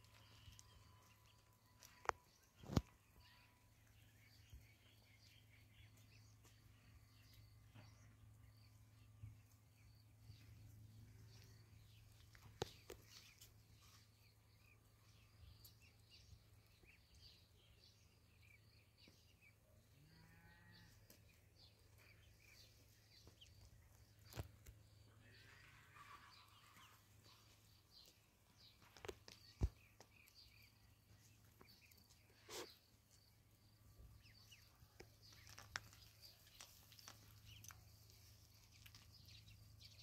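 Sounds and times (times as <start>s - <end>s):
ducklings peeping: 21.2s - 24.7s, 25.4s - 33.1s, 34.1s - 40.0s.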